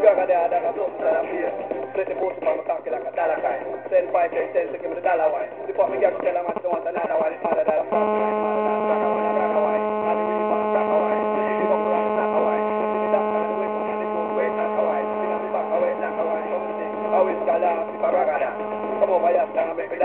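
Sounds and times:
jumble of background sound: 0:00.6 - 0:20.0
loud electrical hum: 0:07.9 - 0:20.0.

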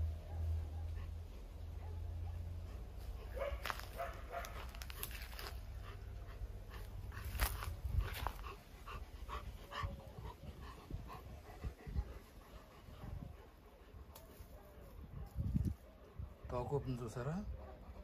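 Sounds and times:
dog panting: 0:00.8 - 0:14.9.

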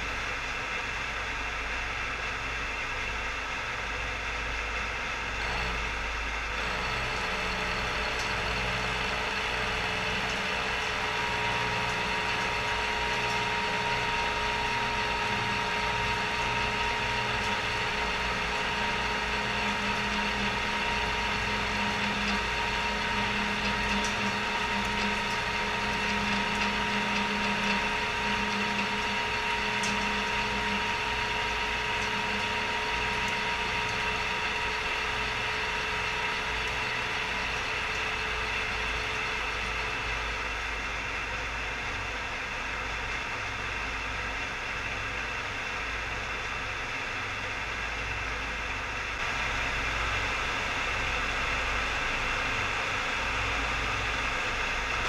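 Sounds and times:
machine whine: 0:00.0 - 0:42.8
milling machine cutting steel: 0:05.4 - 0:40.4.

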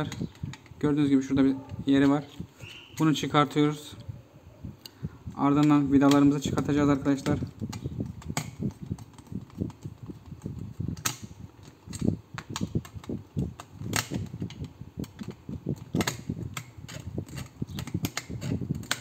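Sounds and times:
screwdriver clicking and scraping: 0:00.0 - 0:00.9, 0:01.6 - 0:03.2, 0:05.4 - 0:19.0
handling plastic switch housing: 0:05.4 - 0:19.0.

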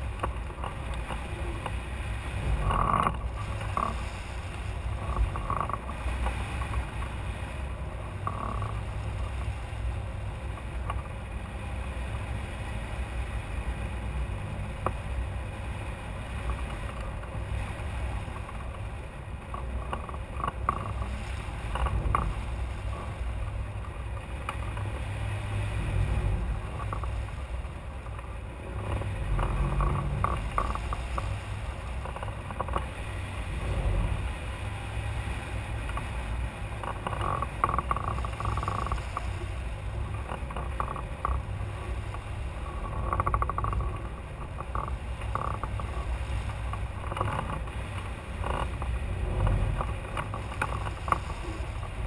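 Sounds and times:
wind rumble on microphone: 0:00.0 - 0:52.0
faint knocks and rattles: 0:25.8 - 0:33.0, 0:36.8 - 0:52.0.

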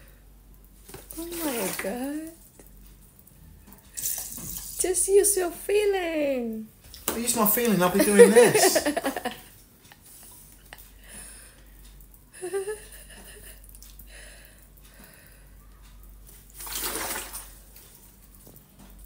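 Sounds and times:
water pouring into pot: 0:16.6 - 0:17.6.

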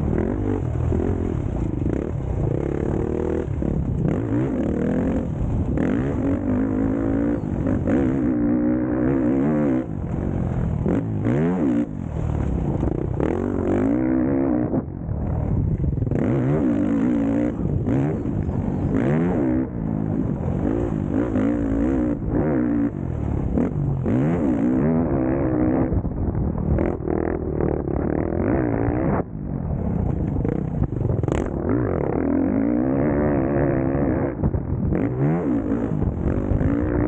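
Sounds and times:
motocross bike engine revving: 0:00.0 - 0:26.0, 0:26.7 - 0:29.3, 0:30.2 - 0:37.0.

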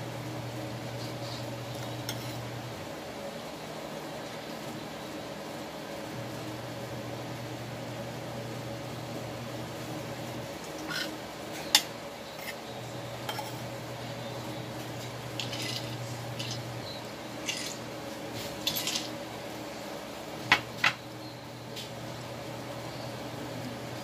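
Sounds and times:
cutlery clinking on a plate: 0:17.4 - 0:17.8, 0:18.6 - 0:19.1.

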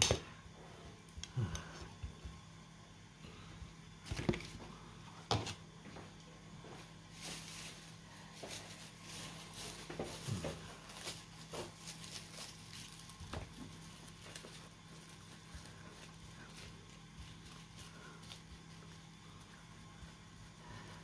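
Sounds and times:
low steady hum: 0:00.0 - 0:21.0
plastic bag crinkling: 0:07.1 - 0:21.0.

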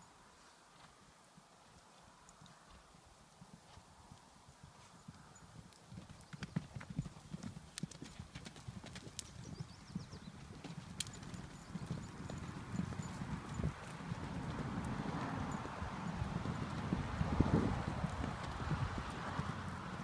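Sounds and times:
horses galloping on gravel: 0:04.8 - 0:20.0.

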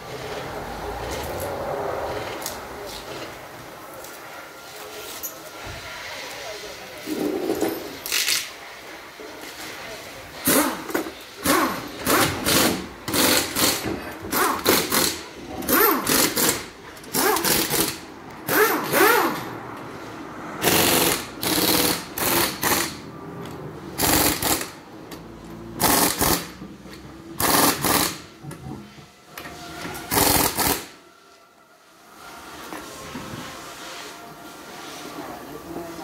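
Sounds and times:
pneumatic impact wrench bursts: 0:10.4 - 0:19.5, 0:20.6 - 0:23.0, 0:24.0 - 0:24.8, 0:25.8 - 0:26.6, 0:27.4 - 0:28.3, 0:30.0 - 0:31.0.

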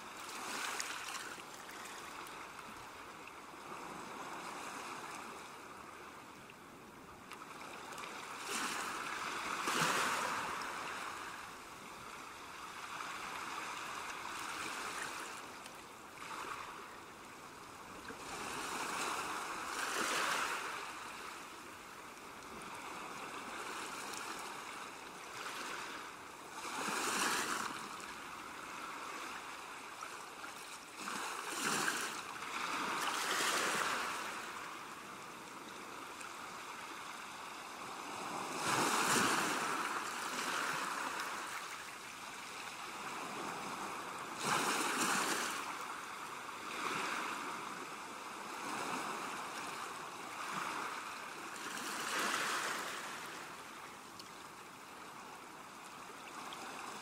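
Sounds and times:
sea waves washing onto shore: 0:17.5 - 0:53.8.

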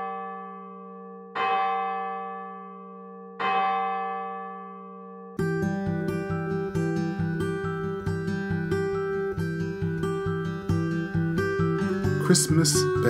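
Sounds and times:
church bell tolling: 0:00.0 - 0:08.9.

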